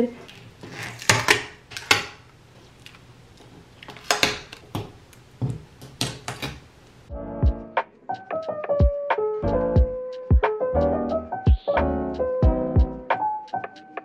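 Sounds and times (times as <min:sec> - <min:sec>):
paper rustling and tapping: 0:03.8 - 0:06.6
piano music: 0:07.1 - 0:14.0.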